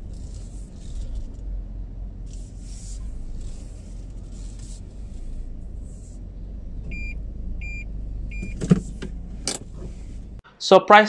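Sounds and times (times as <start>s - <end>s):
car cabin hum: 0.0s - 10.4s
short electronic beeps: 6.9s - 8.6s.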